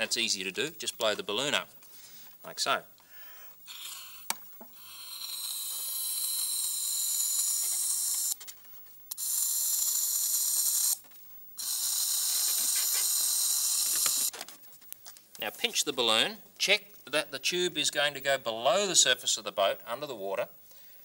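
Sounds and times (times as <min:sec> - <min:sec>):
person blowing air through tube: 0:03.6 - 0:08.4, 0:11.6 - 0:14.3.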